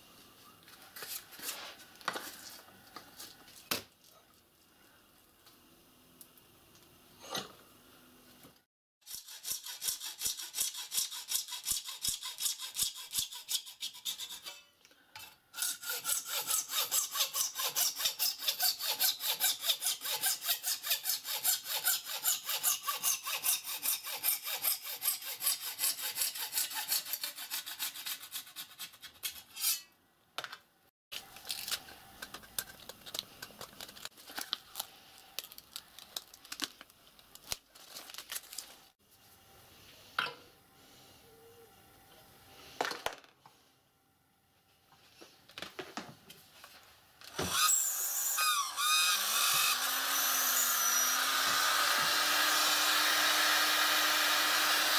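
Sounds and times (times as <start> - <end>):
hacksaw cutting metal sheet: 9.0 - 29.9, 47.4 - 54.9.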